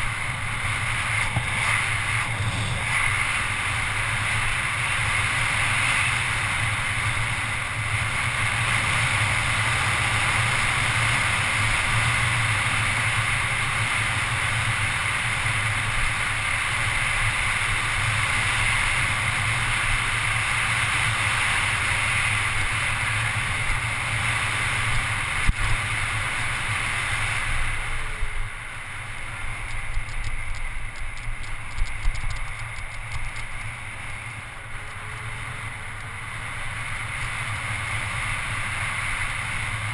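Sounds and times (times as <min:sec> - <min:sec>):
wind rushing over camera: 0:00.0 - 0:39.9
rapid fine ticking: 0:29.0 - 0:39.9.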